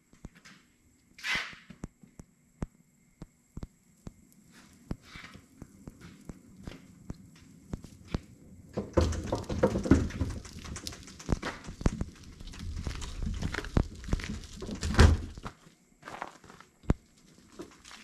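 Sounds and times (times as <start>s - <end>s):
light clicks and steps: 0.0s - 15.6s, 16.2s - 18.0s
wheeled cart rumbling and rattling: 8.6s - 15.4s.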